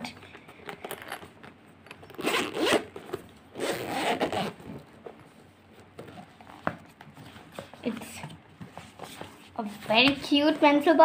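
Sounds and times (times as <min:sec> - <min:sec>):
zipper pulled open: 0:02.0 - 0:04.6.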